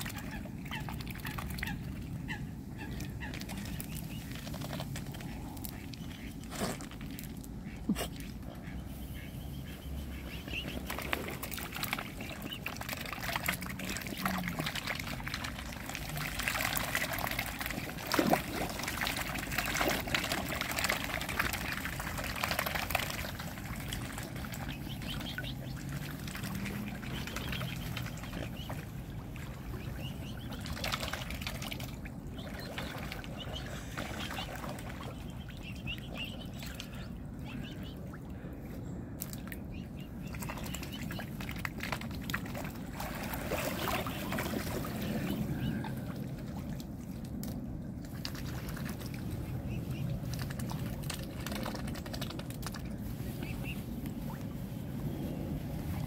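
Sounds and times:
small water splashes: 0.0 - 8.4, 9.2 - 54.7
sharp splash: 10.8 - 28.8.

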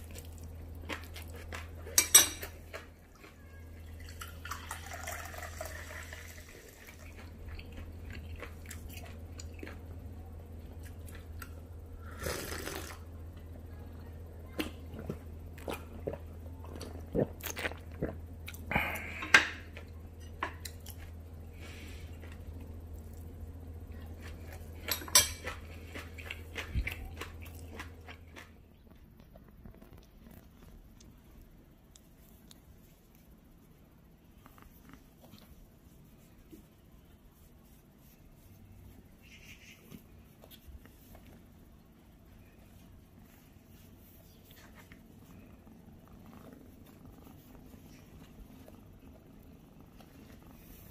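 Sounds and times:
chewing: 0.0 - 33.6, 34.3 - 36.8, 37.4 - 50.9
low hum: 0.0 - 35.0.

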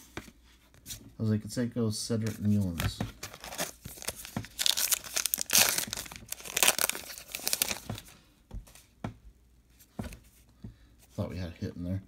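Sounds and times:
card pack wrapper tearing and crinkling: 3.2 - 8.0.

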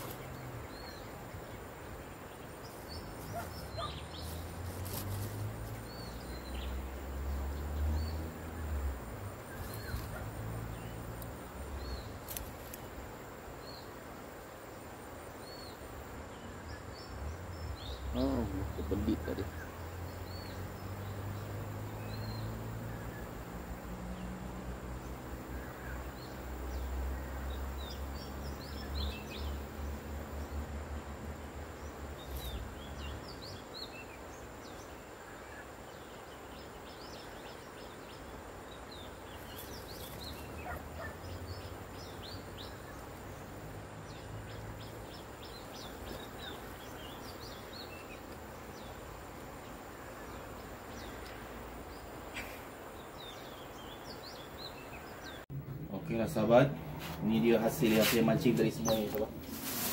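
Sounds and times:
steady background hiss: 0.0 - 59.9
low hum: 55.5 - 57.2.

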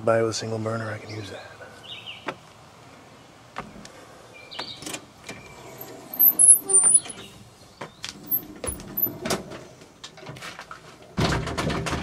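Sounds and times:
scraping rustle: 4.9 - 7.4.

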